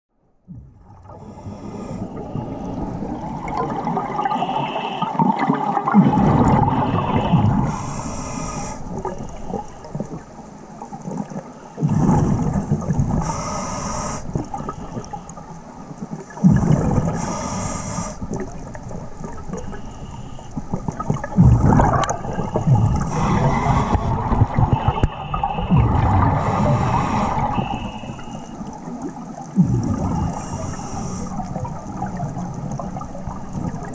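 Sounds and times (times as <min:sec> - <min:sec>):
exhaled air bubbling: 0:00.5 - 0:33.9
regulator inhale hiss: 0:01.1 - 0:02.8, 0:04.3 - 0:05.2, 0:06.8 - 0:10.4, 0:11.4 - 0:15.7, 0:17.0 - 0:18.6, 0:19.2 - 0:20.8, 0:21.9 - 0:29.0, 0:29.9 - 0:33.9.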